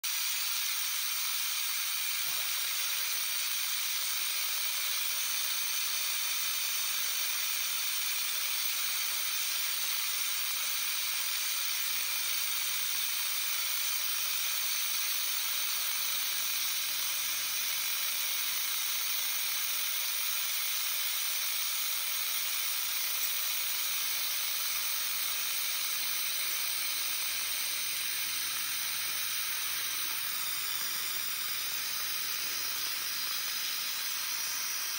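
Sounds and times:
coolant spray hiss: 0:00.0 - 0:34.9
milling machine cutting metal: 0:23.2 - 0:34.9.

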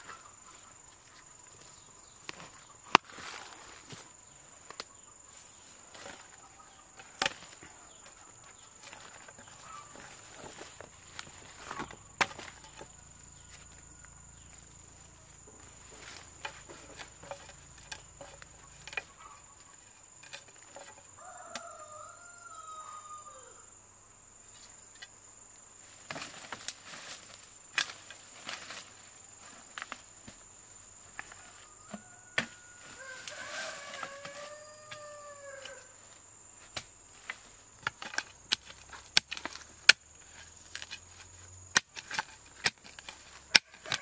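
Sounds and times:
chickens clucking: 0:15.1 - 0:19.9
rooster crowing: 0:21.1 - 0:23.8, 0:31.6 - 0:36.0, 0:43.6 - 0:44.0.

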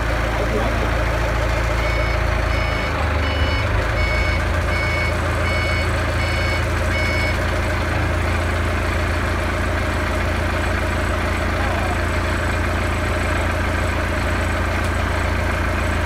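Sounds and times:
forklift engine humming: 0:00.0 - 0:16.0
forklift reversing alarm beeping: 0:01.6 - 0:07.9.

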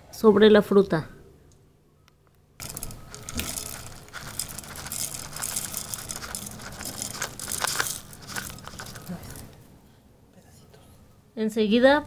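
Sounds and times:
oats poured from plastic bowl: 0:02.6 - 0:09.5.

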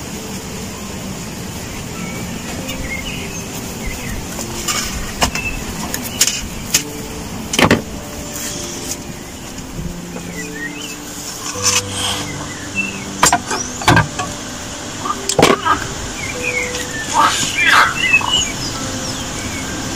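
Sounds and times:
rushing background: 0:00.0 - 0:19.9
metal skewers scraping tray: 0:11.3 - 0:12.4.

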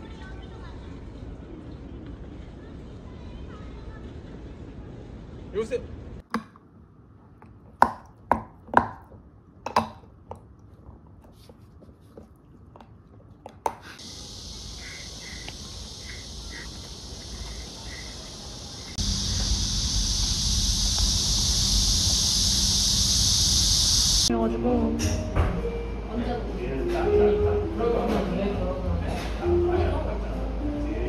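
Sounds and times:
faint chirps: 0:14.0 - 0:24.3
steady high hiss: 0:14.0 - 0:24.3
low hum: 0:14.0 - 0:24.8.

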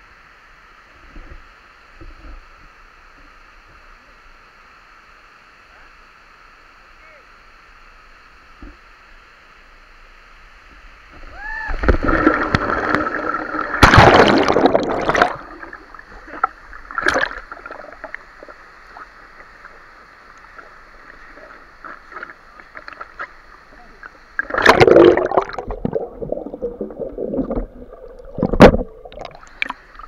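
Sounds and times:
water sloshing and gurgling: 0:10.7 - 0:30.0
person splashing into water: 0:11.8 - 0:15.8, 0:24.4 - 0:29.7.

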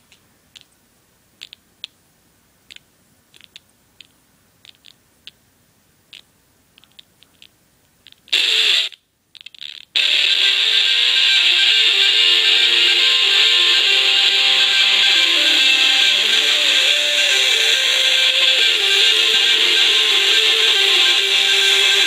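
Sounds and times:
guitar song through small speaker: 0:10.0 - 0:22.0.

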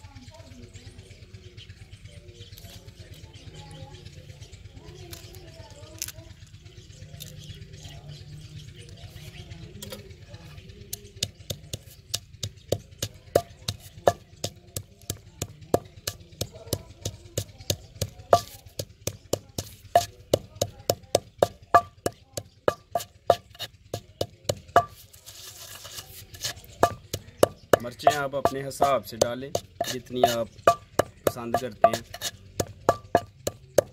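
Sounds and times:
pestle pounding in stone mortar: 0:10.9 - 0:33.9.

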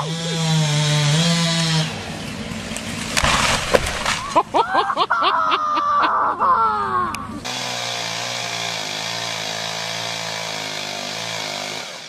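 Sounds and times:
crackling: 0:02.7 - 0:04.5
wood splintering: 0:02.8 - 0:04.4, 0:07.4 - 0:12.0
tree crashing onto roof: 0:03.0 - 0:04.4.

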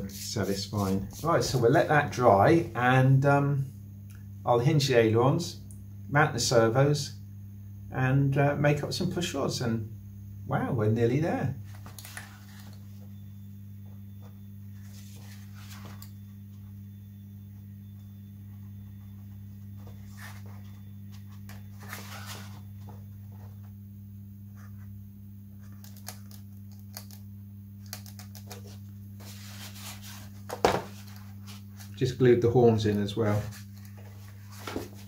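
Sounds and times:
low electrical hum: 0:00.0 - 0:35.0.

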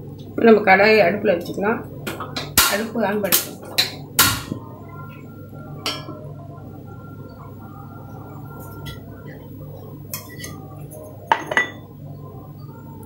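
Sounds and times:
steady low hum: 0:00.0 - 0:13.0
kitchenware clinking: 0:11.3 - 0:11.9.

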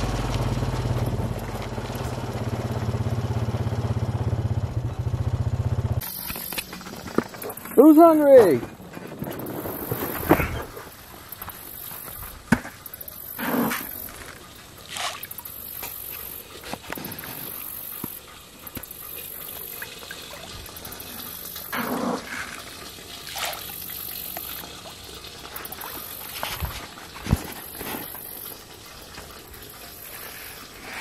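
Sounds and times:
fish splashing and slurping: 0:00.0 - 0:03.2, 0:06.0 - 0:31.0.

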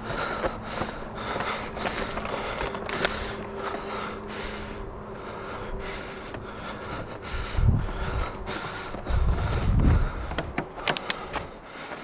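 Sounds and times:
footsteps on dry grass: 0:00.0 - 0:04.3, 0:06.1 - 0:12.0
faint hum: 0:00.0 - 0:12.0.

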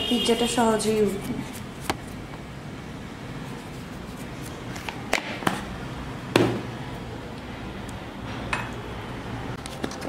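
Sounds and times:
knocks on wooden board: 0:06.4 - 0:06.6.

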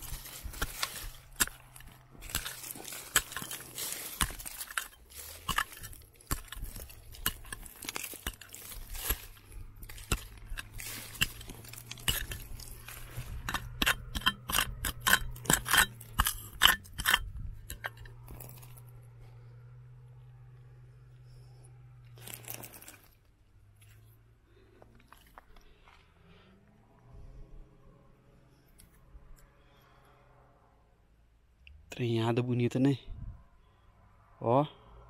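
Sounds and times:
digging tool clinking on rock: 0:00.0 - 0:18.8, 0:22.2 - 0:23.1.

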